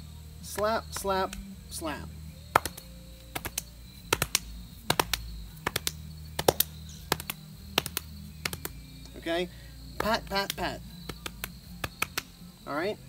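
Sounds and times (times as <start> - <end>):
hands slapping shirt and holster: 2.5 - 8.8, 10.0 - 12.4.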